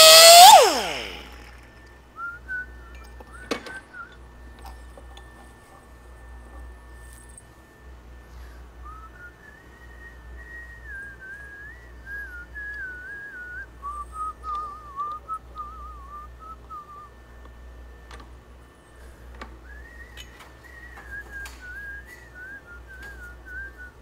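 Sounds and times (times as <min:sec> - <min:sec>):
low steady hum: 0:00.0 - 0:24.0
person whistling a tune: 0:01.8 - 0:04.6, 0:08.4 - 0:17.5, 0:19.6 - 0:24.0.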